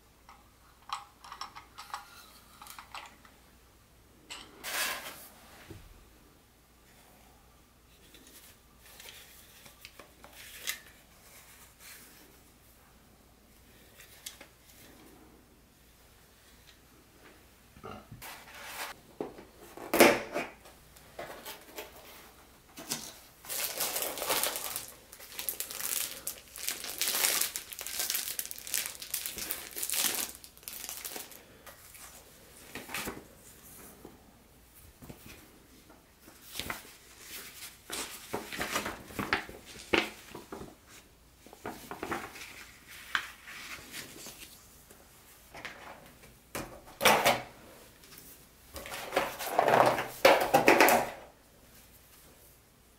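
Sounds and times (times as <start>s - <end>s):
packaging rustling and crinkling: 23.4s - 33.2s.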